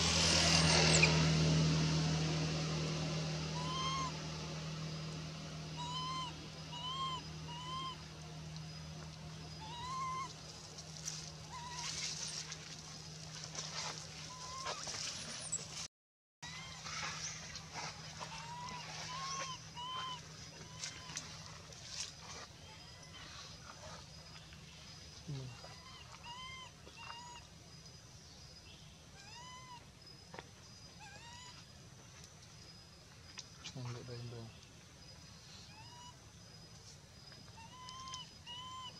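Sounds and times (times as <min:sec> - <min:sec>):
baby monkey coo calls: 0:03.4 - 0:04.3, 0:05.7 - 0:08.2, 0:09.4 - 0:10.7, 0:11.4 - 0:12.5, 0:14.3 - 0:15.6, 0:16.4 - 0:17.2, 0:18.1 - 0:21.6, 0:25.2 - 0:27.5, 0:29.1 - 0:30.0, 0:31.0 - 0:31.7, 0:35.6 - 0:36.3, 0:37.4 - 0:38.9
rustling of dry leaves and gravel: 0:10.3 - 0:27.4.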